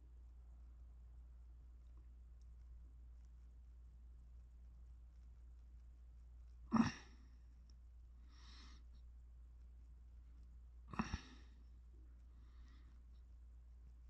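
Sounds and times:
faint breath: 8.2 - 9.0, 10.9 - 13.2
man sighing: 10.9 - 11.5.

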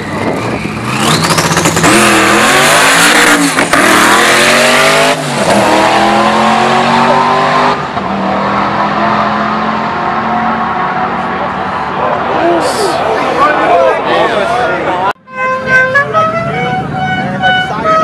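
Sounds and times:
drag car engine at full throttle: 0.0 - 13.2.

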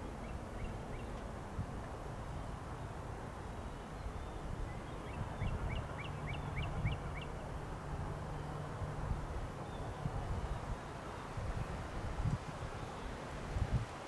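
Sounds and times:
bird chirping: 0.2 - 1.2, 3.6 - 7.4.

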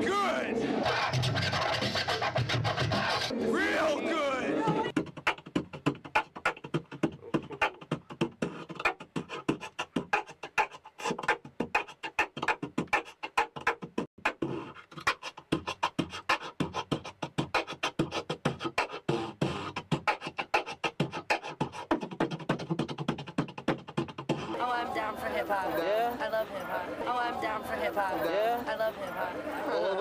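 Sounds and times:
person beatboxing: 0.8 - 3.4, 4.6 - 26.3.

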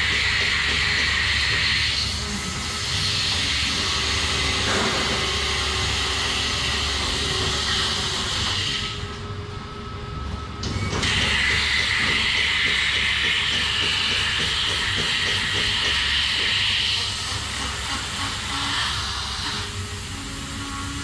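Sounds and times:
low machine hum: 0.0 - 21.0
milking machine hiss: 11.0 - 21.0.

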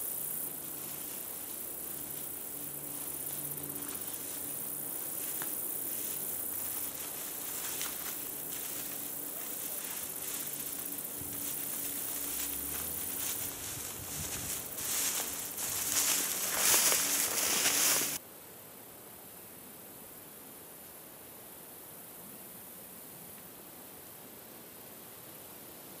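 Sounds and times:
footsteps crunching dry grass: 0.0 - 18.2
high-pitched insect buzz: 0.0 - 18.2.

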